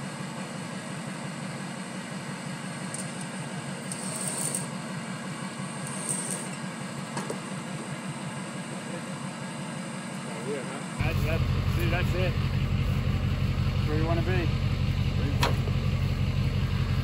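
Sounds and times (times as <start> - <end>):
electric winch running: 0.0 - 17.0.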